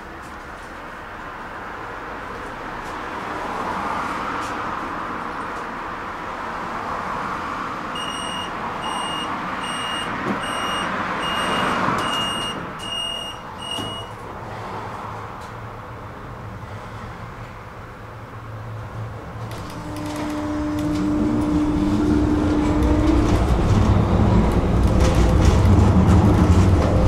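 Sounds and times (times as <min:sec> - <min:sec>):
tram wheels rumbling on rails: 0:18.8 - 0:27.0.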